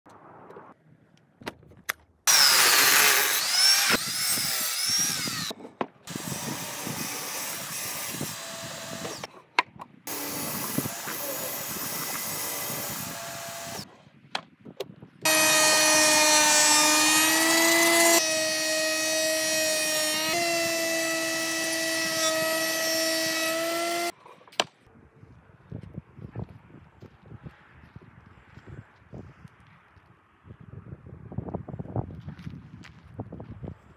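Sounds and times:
table saw cutting a board: 0:02.3 - 0:05.5, 0:06.1 - 0:09.3, 0:10.1 - 0:13.8, 0:15.3 - 0:24.1
thickness planer whining: 0:02.3 - 0:09.3, 0:10.1 - 0:13.8, 0:15.3 - 0:24.1.

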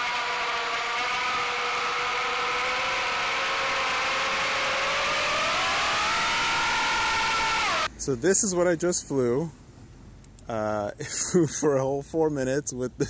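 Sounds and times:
drone motors and propellers whining: 0:00.0 - 0:07.9.

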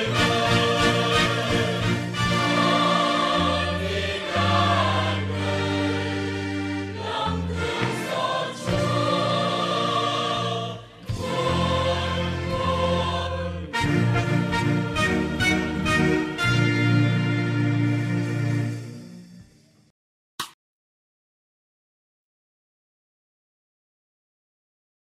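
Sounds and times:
choir singing a hymn: 0:00.0 - 0:18.7.

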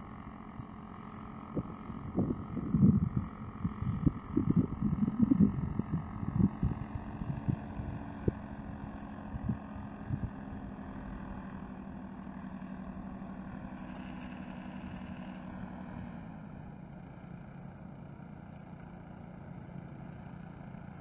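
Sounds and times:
paramotor engine and propeller droning: 0:00.0 - 0:21.0
wind buffeting microphone: 0:01.5 - 0:10.8.

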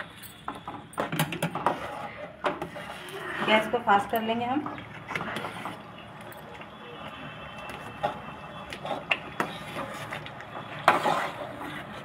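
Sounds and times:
spatula scraping against pan: 0:01.6 - 0:04.1, 0:07.7 - 0:12.0.

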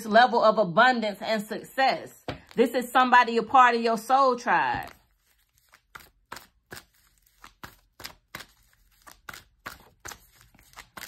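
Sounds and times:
cards being shuffled by hand: 0:04.7 - 0:11.0.

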